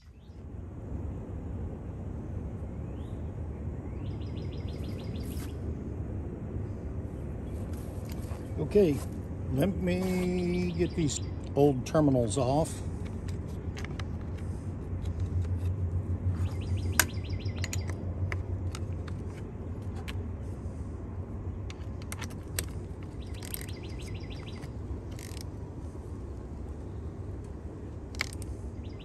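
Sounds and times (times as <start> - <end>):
steady low hum: 0.0 - 29.0
birds chirping: 2.8 - 5.6, 6.6 - 20.6, 21.4 - 25.4, 28.2 - 29.0
metal tools clinking on bolts: 17.0 - 18.0
socket ratchet clicking: 21.7 - 25.5.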